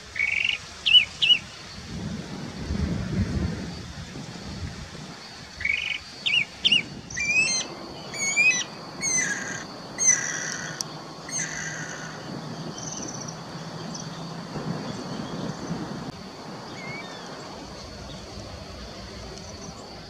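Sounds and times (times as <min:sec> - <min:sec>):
bird whistled calls: 0:00.2 - 0:01.5, 0:05.6 - 0:10.5, 0:16.7 - 0:17.3.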